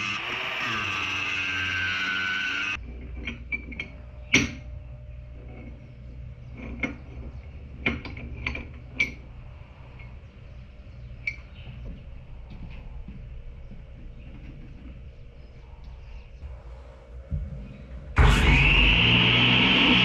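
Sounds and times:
metal clanks and knocks: 2.8s - 4.7s, 5.4s - 9.4s.

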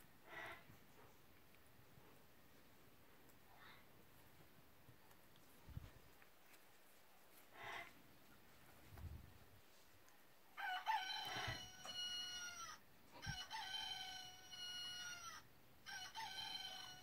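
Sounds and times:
toy rooster crow: 10.6s - 17.0s.

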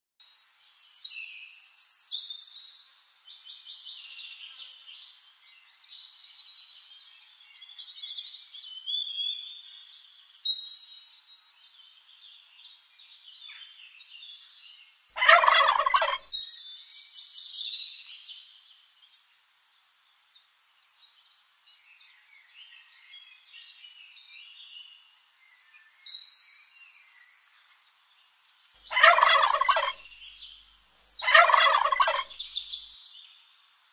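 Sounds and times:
high chirping bird calls: 15.2s - 16.2s, 28.8s - 30.1s, 31.1s - 32.9s
turkey gobbling: 15.2s - 16.2s, 28.9s - 30.0s, 31.2s - 32.4s.

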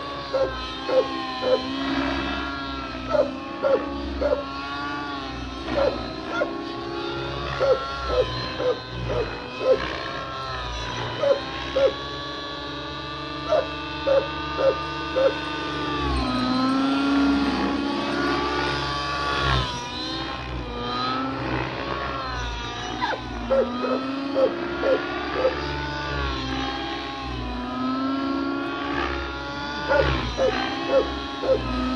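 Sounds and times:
rc helicopter engine and rotor whine: 0.0s - 31.9s.

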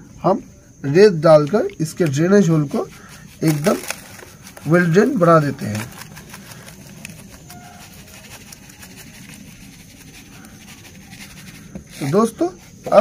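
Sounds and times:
sand trickling into plastic pot: 1.4s - 13.0s.

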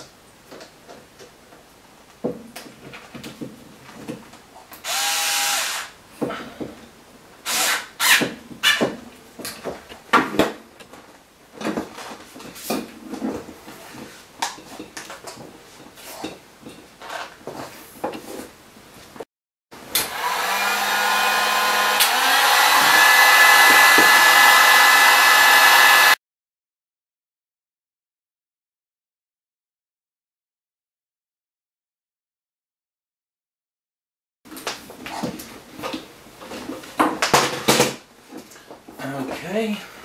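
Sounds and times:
cordless screwdriver running: 4.8s - 5.9s, 20.0s - 26.2s
heat gun blowing: 4.8s - 5.9s, 19.8s - 26.2s.

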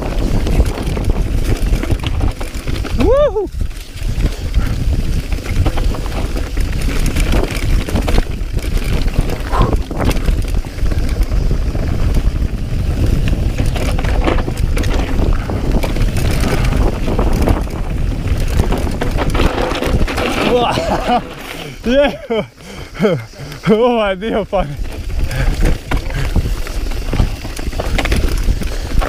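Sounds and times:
bike rattling over rough ground: 0.0s - 29.0s
wind on microphone: 0.0s - 29.0s.

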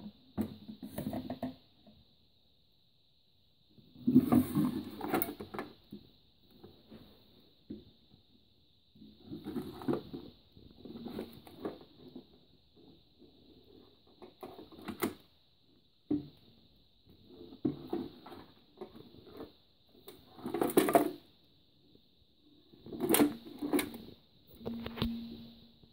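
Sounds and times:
faint high whine: 23.6s - 25.9s.

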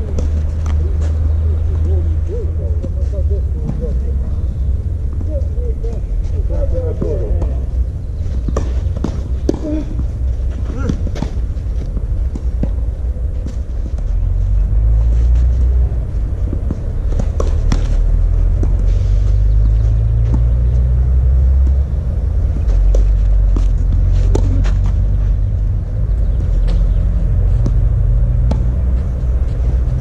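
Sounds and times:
tennis balls struck by rackets: 0.0s - 4.2s, 5.0s - 14.2s, 15.0s - 30.0s.

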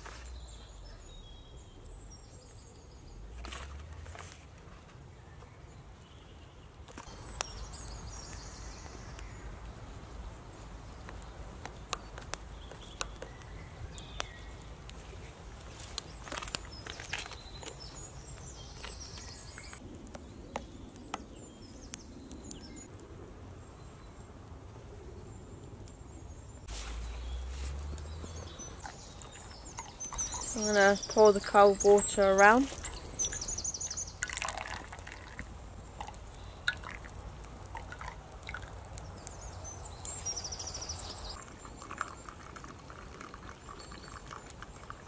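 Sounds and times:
campfire crackling: 5.8s - 45.0s
faint bird chirps: 27.0s - 34.5s.

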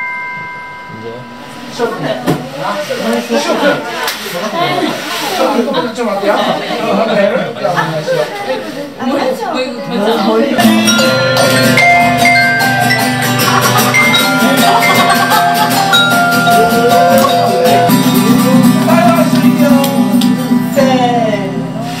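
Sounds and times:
metal tone bars struck with mallet: 0.0s - 1.8s, 10.6s - 18.7s
low steady accompaniment: 10.6s - 21.8s
person singing: 10.6s - 22.0s.

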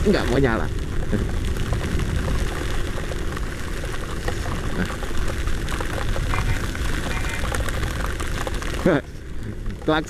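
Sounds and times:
low rumble: 0.0s - 9.9s
heavy rain: 0.0s - 10.0s
wind buffeting microphone: 0.0s - 10.0s.

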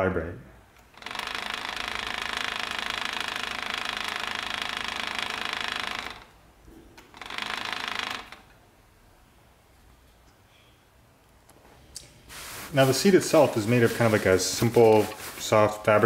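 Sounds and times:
vibration motor buzzing: 0.9s - 6.3s, 7.1s - 8.4s.

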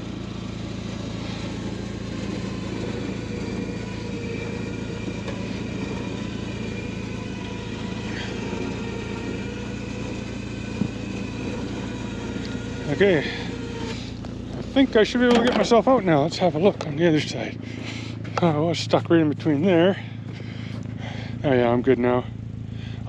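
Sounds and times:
faint high whine: 0.0s - 17.5s
vehicle engine humming: 0.0s - 23.0s.

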